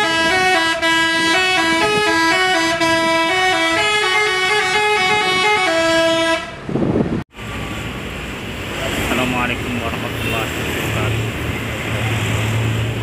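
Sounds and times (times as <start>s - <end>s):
multi-note bus horn melody: 0.0s - 6.7s.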